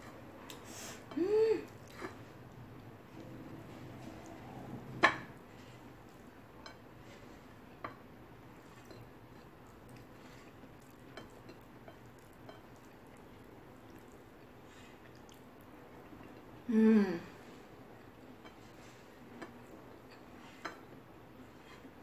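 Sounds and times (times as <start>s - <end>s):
faint chewing: 0.0s - 16.6s.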